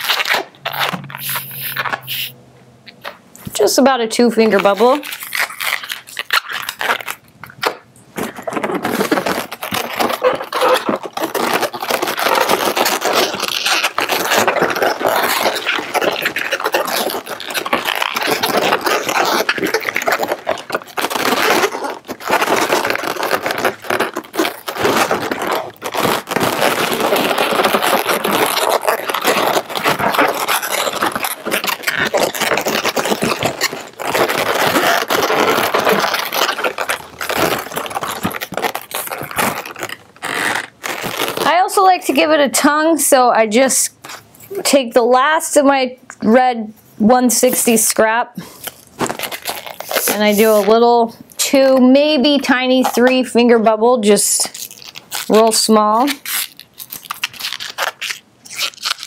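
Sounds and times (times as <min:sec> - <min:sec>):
balloons rubbing and squeaking: 0:00.0 - 0:45.8, 0:46.8 - 0:59.0.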